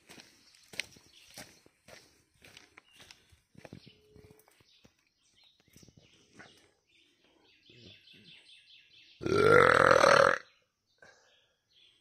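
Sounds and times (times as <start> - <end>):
person making guttural sound: 9.2 - 10.5.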